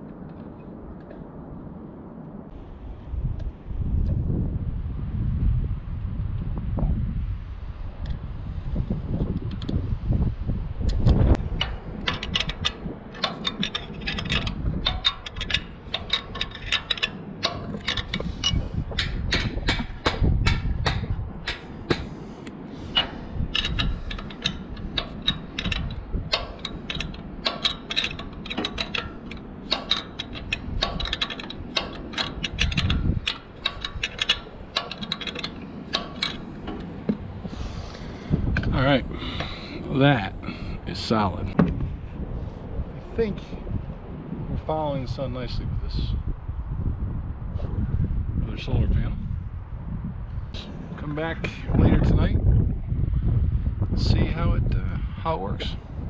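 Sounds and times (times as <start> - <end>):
ratchet wrench clicking: 11.6 - 22.2, 23.0 - 37.2.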